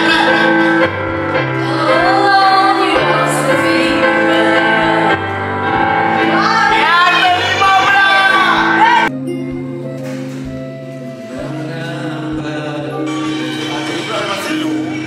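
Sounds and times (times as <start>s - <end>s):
karaoke backing track: 0.0s - 15.0s
woman singing into microphone: 1.6s - 5.3s.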